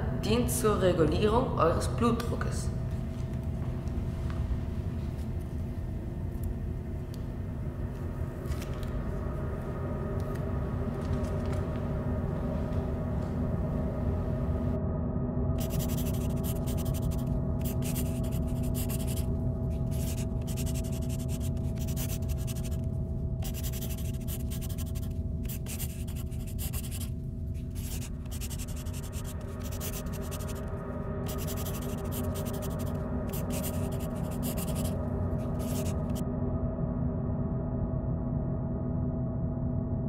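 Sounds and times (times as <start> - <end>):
steady low drone: 2.7 - 40.0
pen scratching on paper: 15.6 - 22.8, 23.4 - 30.6, 31.3 - 36.2.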